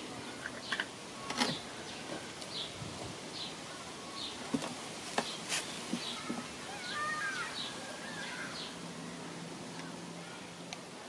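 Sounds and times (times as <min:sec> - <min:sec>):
bird call: 0:05.9 - 0:08.8.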